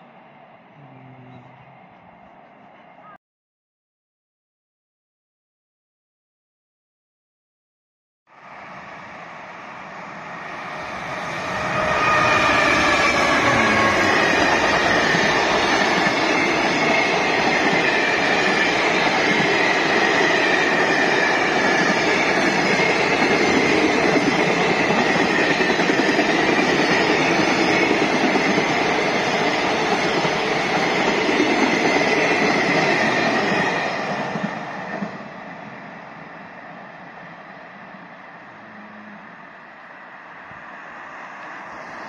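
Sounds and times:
freight train rolling past: 8.4 - 42.0.

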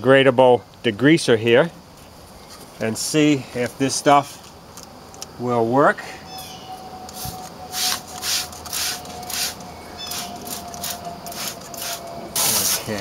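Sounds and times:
spray bottle hissing sprays: 7.1 - 13.0.

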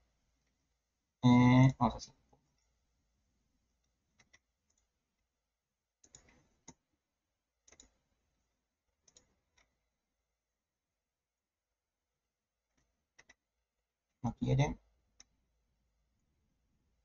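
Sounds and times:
computer mouse clicks: 4.2 - 4.9, 6.0 - 6.8, 7.6 - 8.0, 9.0 - 9.8, 12.7 - 13.4.

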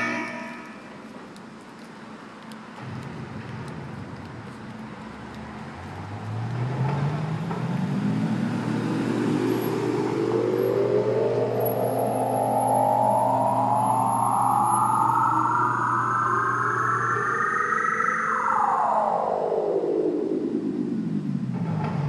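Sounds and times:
rising layered tone: 0.0 - 1.1, 6.1 - 22.0
steady low hum: 7.4 - 22.0.

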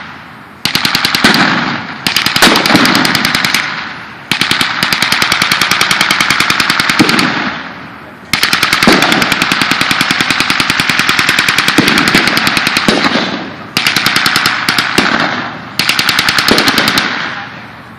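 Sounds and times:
machine gun firing bursts: 0.6 - 17.7.

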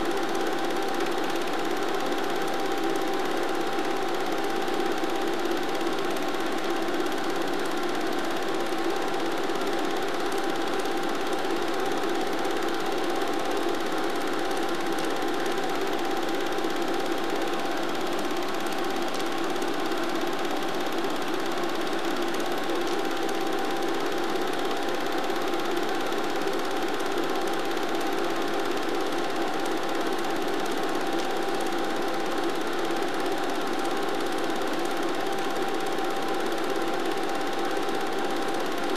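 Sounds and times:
film projector whirring: 0.0 - 38.9.

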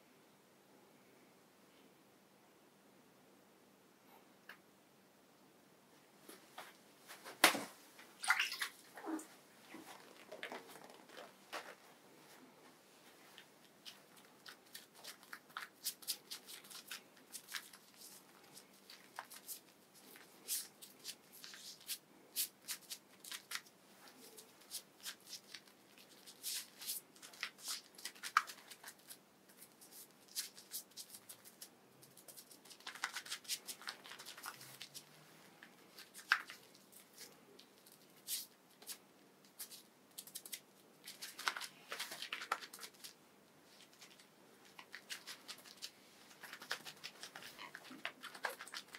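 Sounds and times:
wet squishing of lather: 8.2 - 9.2.

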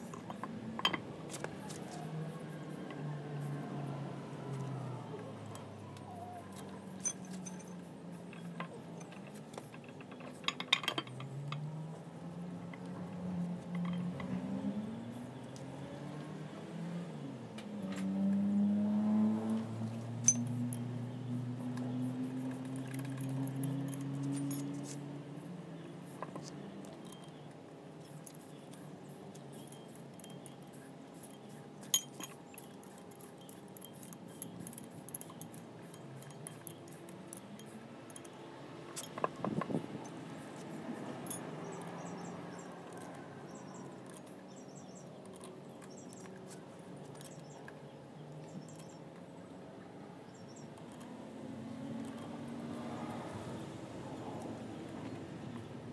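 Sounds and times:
metallic clinks and taps: 0.1 - 1.8, 5.5 - 11.7, 13.7 - 14.4, 20.2 - 25.1, 26.2 - 40.2, 41.1 - 49.0, 50.3 - 51.1, 51.8 - 53.2.

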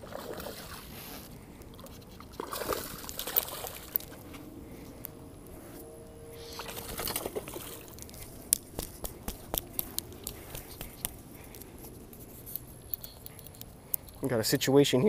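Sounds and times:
fishing line swishing: 0.0 - 4.4, 5.7 - 13.2
sharp clicks: 8.0 - 11.7.

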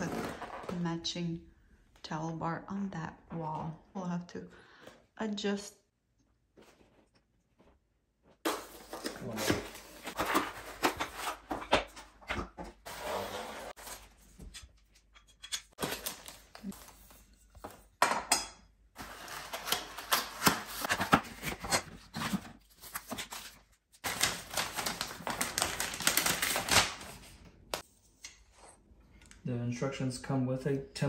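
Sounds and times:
paper sheet rustling: 8.5 - 14.4.

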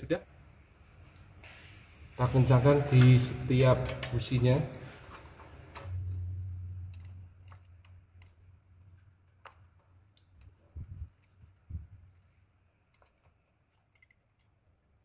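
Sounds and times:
low hum: 2.2 - 12.2.

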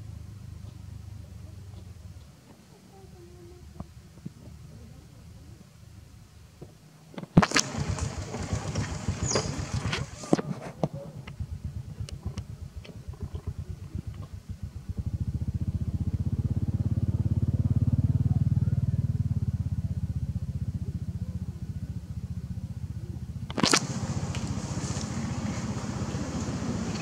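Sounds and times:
engine running: 7.4 - 10.5, 11.5 - 27.0.

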